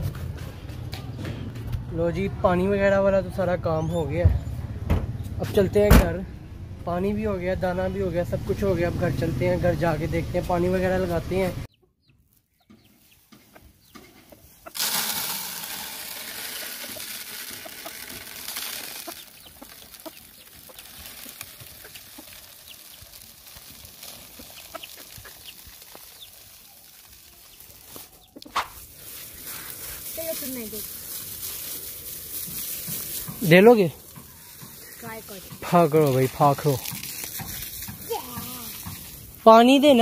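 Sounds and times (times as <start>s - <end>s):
chickens clucking: 11.7s - 14.8s, 16.5s - 26.3s, 26.9s - 28.8s
plastic bag rustling: 14.7s - 40.0s.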